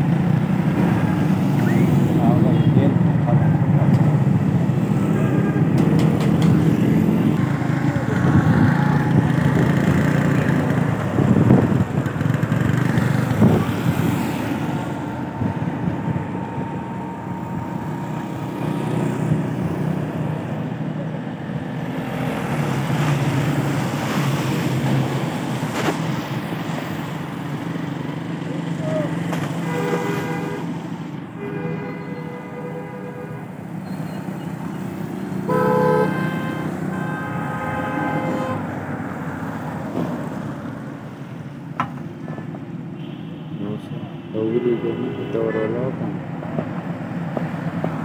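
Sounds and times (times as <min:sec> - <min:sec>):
motorcycle engine drone: 0:00.0 - 0:20.5
road noise on wet tarmac: 0:00.0 - 0:48.0.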